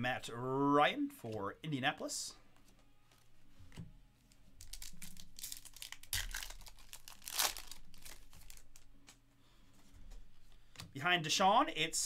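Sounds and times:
trading cards rustling: 0:04.3 - 0:09.2
foil wrapper crinkling: 0:04.6 - 0:08.9.

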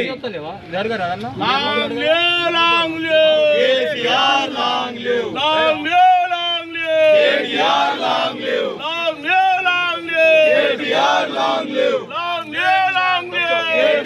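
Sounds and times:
crowd of men chanting: 0:01.4 - 0:14.0.

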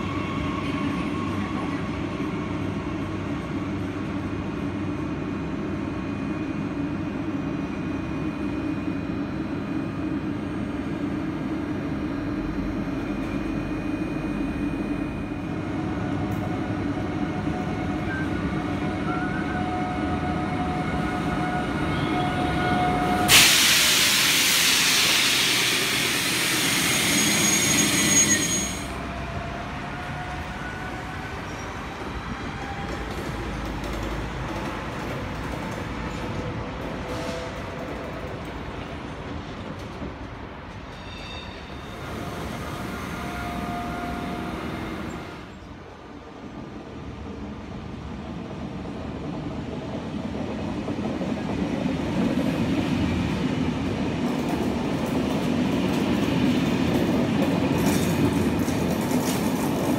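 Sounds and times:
low hum of train machinery: 0:00.0 - 0:59.9
loud air hiss: 0:23.2 - 0:28.0.

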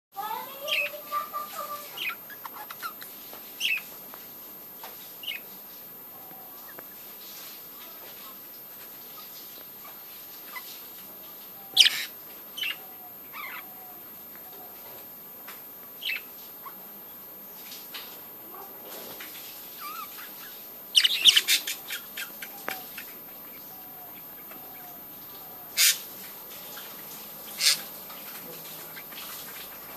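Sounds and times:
budgerigars chirping: 0:01.9 - 0:03.9, 0:11.6 - 0:13.9, 0:16.0 - 0:16.8, 0:19.8 - 0:26.1, 0:27.5 - 0:27.9.

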